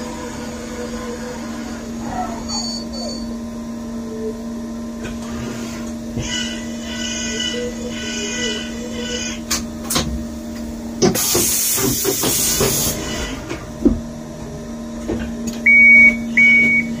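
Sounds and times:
machine humming: 0:00.0 - 0:17.0
hiss: 0:11.2 - 0:13.1.

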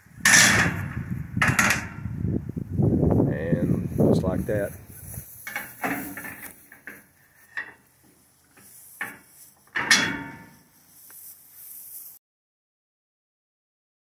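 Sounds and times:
metal gate slamming shut: 0:00.2 - 0:02.0, 0:05.5 - 0:06.4, 0:09.7 - 0:10.6
metal gate clanks and rattles: 0:00.2 - 0:02.1, 0:05.4 - 0:07.0, 0:07.6 - 0:07.8, 0:09.0 - 0:10.6.

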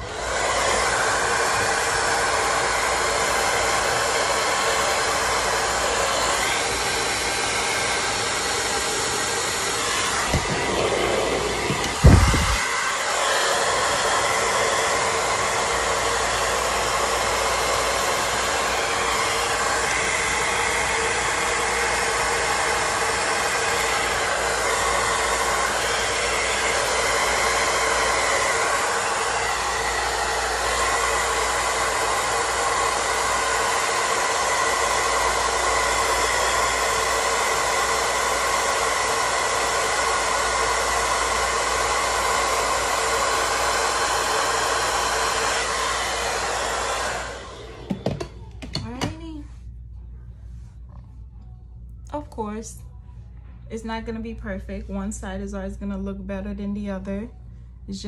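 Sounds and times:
hair dryer blowing: 0:00.0 - 0:49.4
short thump: 0:10.2 - 0:10.8.

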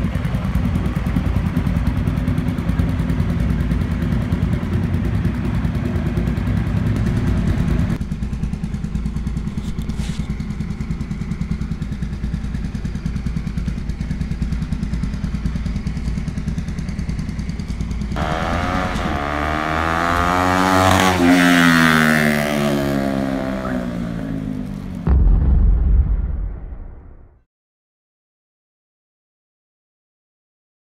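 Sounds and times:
motorcycle engine idling and revving: 0:00.0 - 0:25.3.

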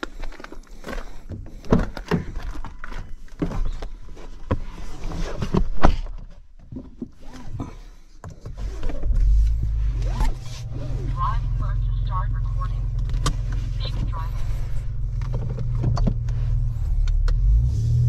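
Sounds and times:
clothing and seat rustling: 0:00.0 - 0:12.2.

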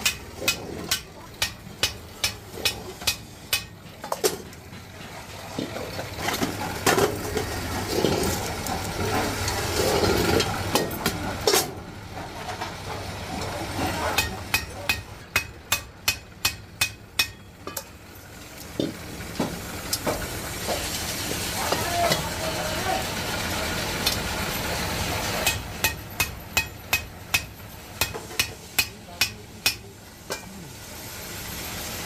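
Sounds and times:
hammer tapping metal: 0:00.0 - 0:04.4, 0:14.1 - 0:17.9, 0:25.4 - 0:30.5.

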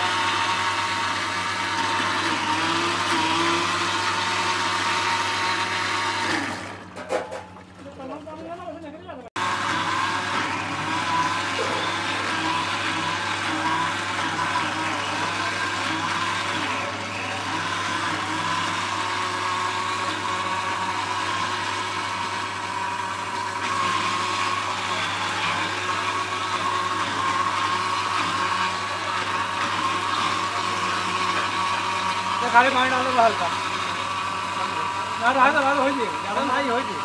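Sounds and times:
electric grinder motor humming: 0:00.0 - 0:06.8, 0:09.4 - 0:37.0.

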